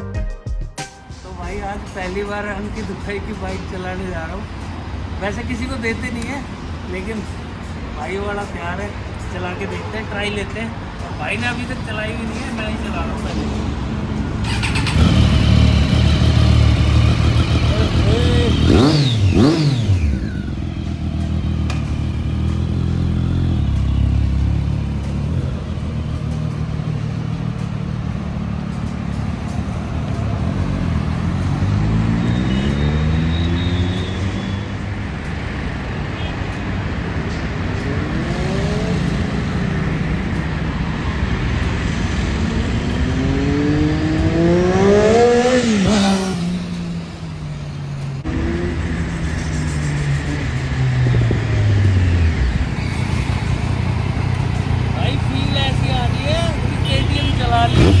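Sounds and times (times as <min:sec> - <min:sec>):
road traffic noise: 0:00.0 - 0:58.0
motorcycle engine revving: 0:14.4 - 0:28.8, 0:29.9 - 0:35.0, 0:37.8 - 0:40.6, 0:41.8 - 0:58.0.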